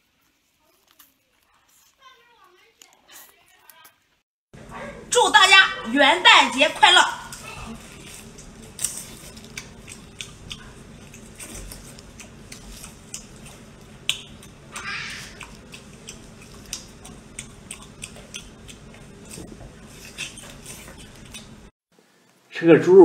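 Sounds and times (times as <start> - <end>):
wet squelching food: 6.0 - 21.7
lips smacking: 9.4 - 21.6.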